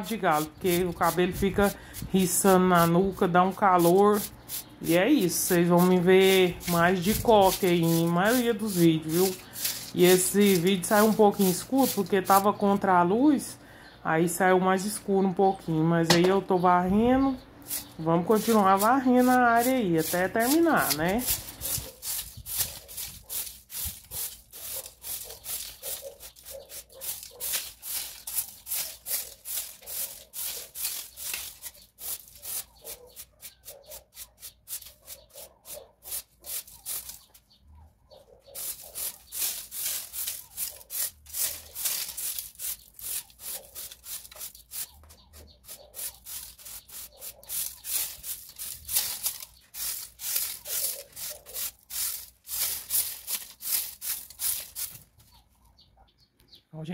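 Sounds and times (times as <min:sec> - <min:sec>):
broom sweeping a hard floor: 0:05.5 - 0:12.0, 0:38.6 - 0:44.9, 0:45.7 - 0:55.0.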